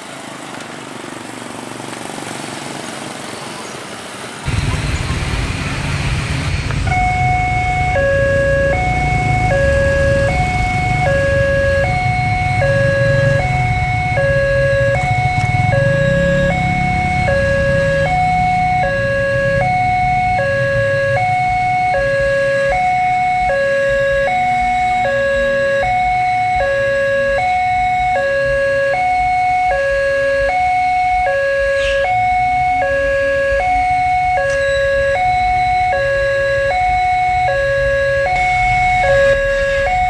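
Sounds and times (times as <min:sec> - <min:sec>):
motorcycle passing: 0:01.0 - 0:29.1
level crossing two-tone alarm: 0:06.9 - 0:40.0.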